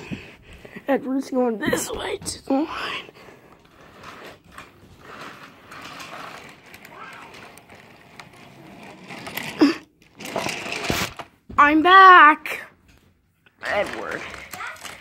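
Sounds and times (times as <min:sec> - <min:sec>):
toy train motor whirring: 0:03.6 - 0:11.3, 0:13.6 - 0:15.0.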